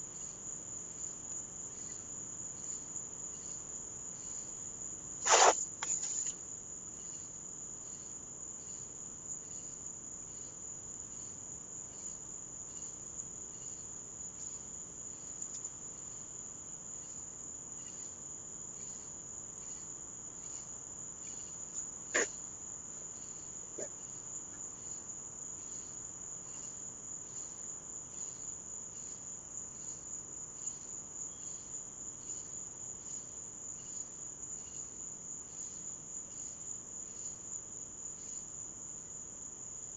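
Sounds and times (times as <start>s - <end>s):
night insects trilling: 0.0s - 39.9s.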